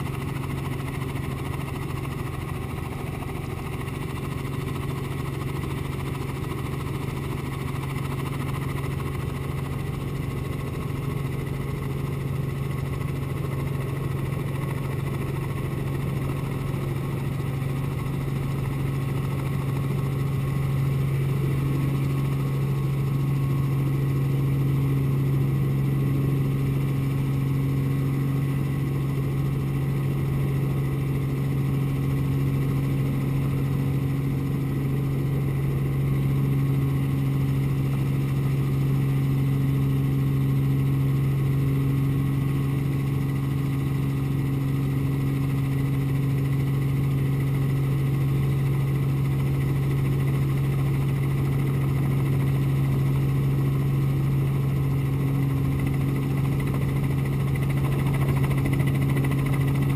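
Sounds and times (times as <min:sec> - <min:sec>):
helicopter engine and rotors humming: 0:00.0 - 0:59.9.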